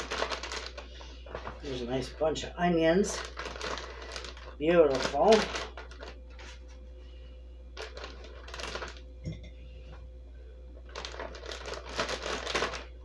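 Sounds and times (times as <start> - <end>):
plastic bags crinkling: 0.0 - 6.7, 7.8 - 9.0, 10.8 - 13.0
steady low hum: 0.0 - 13.0.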